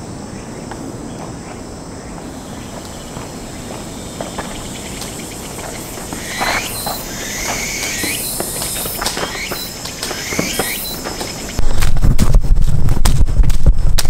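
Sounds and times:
squeaky chirps and squeals: 0:04.4 - 0:11.8.

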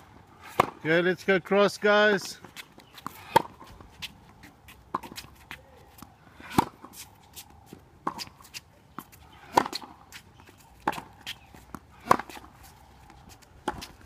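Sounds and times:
tennis ball hit by rackets: 0:00.5 - 0:00.8, 0:02.9 - 0:03.8, 0:04.9 - 0:07.0, 0:08.0 - 0:14.0
shoes scuffing on court: 0:02.0 - 0:14.0.

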